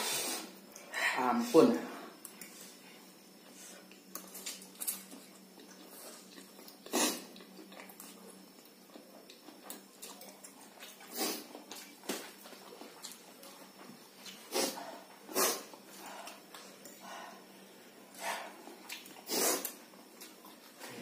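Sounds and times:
sharp puffs of breath: 0:00.0 - 0:00.6.

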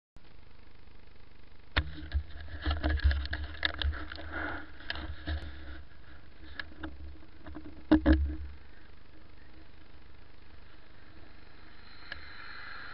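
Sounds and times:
knocks and rattles: 0:06.6 - 0:08.5.

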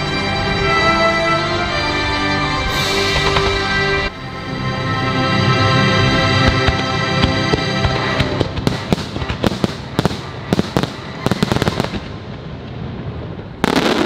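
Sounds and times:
fireworks show music: 0:00.0 - 0:14.0
fireworks bursting with sharp bangs: 0:06.4 - 0:14.0.

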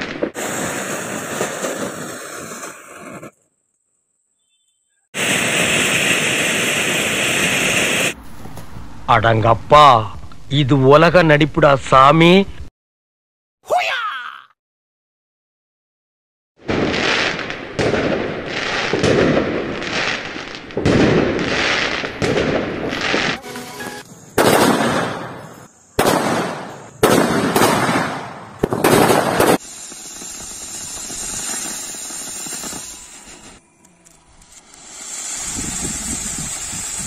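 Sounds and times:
firecracker bangs: 0:00.0 - 0:03.3, 0:05.2 - 0:08.9, 0:16.6 - 0:33.6
firework hissing crackle: 0:00.0 - 0:03.8, 0:05.2 - 0:08.8, 0:16.7 - 0:37.0.

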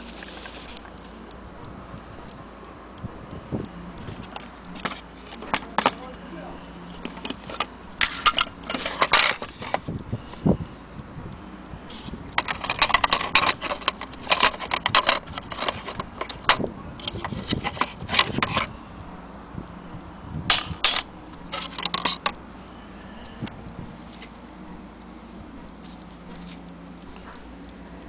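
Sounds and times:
clock case clicking and clattering: 0:04.3 - 0:06.0, 0:07.0 - 0:09.8, 0:12.4 - 0:18.7, 0:20.5 - 0:22.4.

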